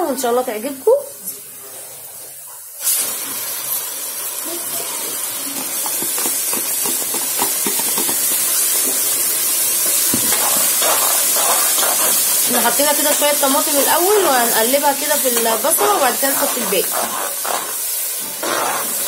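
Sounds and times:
tomato sizzling in hot oil: 2.0 - 19.0
spoon scraping metal pot: 14.1 - 19.0.

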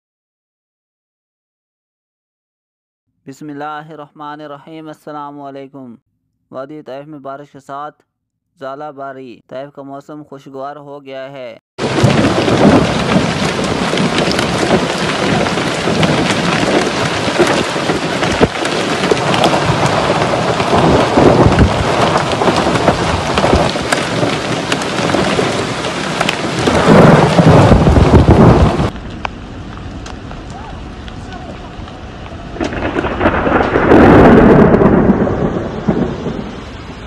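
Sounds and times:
hail and rain pelting road: 11.8 - 37.0
low rumbling: 11.8 - 37.0.

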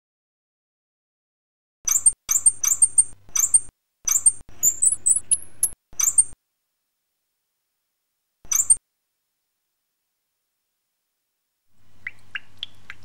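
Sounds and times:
high-pitched squeaks and chirps: 1.8 - 6.4, 8.4 - 8.8.

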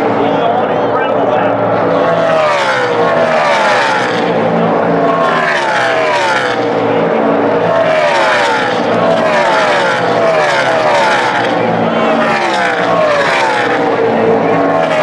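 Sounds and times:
race truck engines passing: 0.0 - 15.0.

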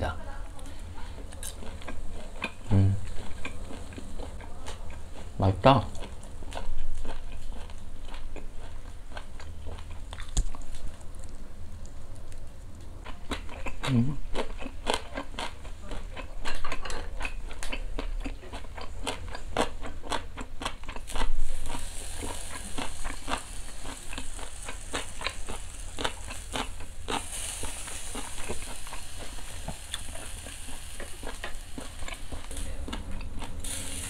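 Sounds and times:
meat sizzling on charcoal grill: 0.0 - 8.0, 21.0 - 34.0
close-up chewing: 0.6 - 33.6.

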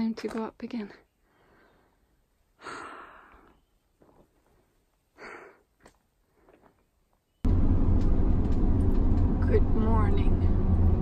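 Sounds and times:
person breathing out hard: 2.6 - 3.6, 5.2 - 5.7.

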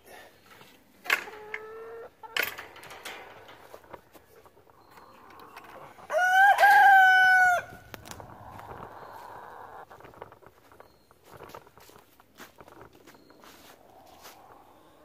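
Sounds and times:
rooster crowing: 5.8 - 9.2.

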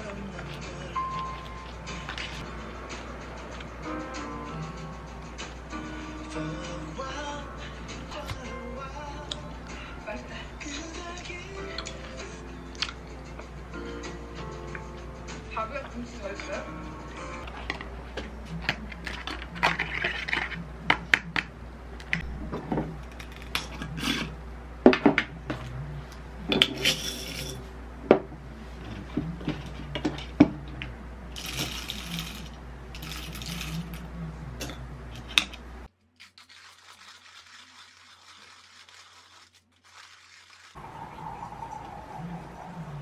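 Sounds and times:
coffee beans rattling into mill: 26.8 - 27.6, 31.4 - 34.0.

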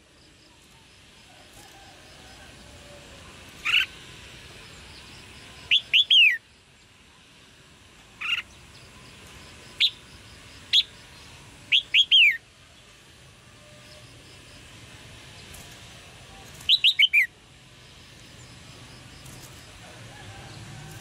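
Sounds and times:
bird chirping calls: 5.0 - 6.4, 10.7 - 12.4, 16.3 - 17.3.

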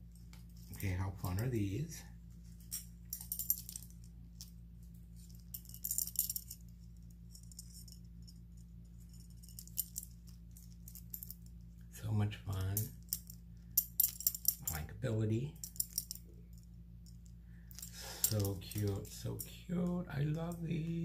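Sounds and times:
low steady hum: 0.0 - 21.0
metal earrings jingling: 2.4 - 4.5, 5.1 - 11.6, 12.6 - 14.8, 15.6 - 21.0.

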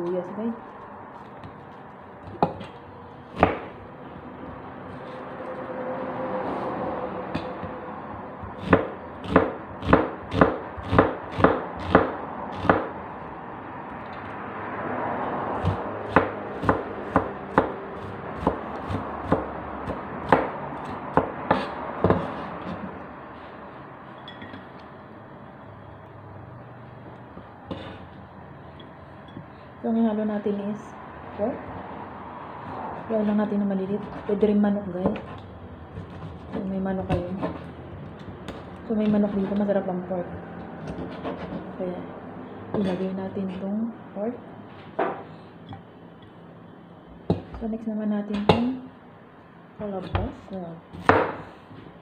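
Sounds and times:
cleaver chopping on wooden block: 8.6 - 12.9, 15.6 - 17.8, 18.4 - 22.3, 51.0 - 51.4
rubbing and scraping on board: 40.9 - 41.7.

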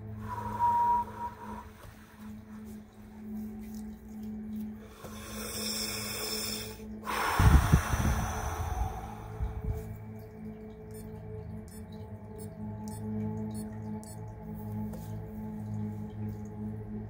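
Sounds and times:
person breathing deeply: 4.8 - 10.0
forceful breath blowing on microphone: 7.1 - 10.0.

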